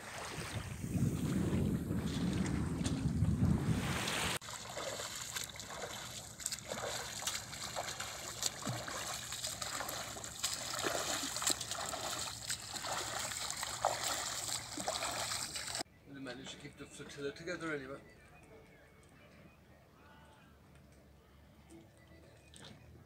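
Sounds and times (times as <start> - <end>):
wind buffeting microphone: 0.0 - 4.4
swimmer splashing water: 0.0 - 15.8.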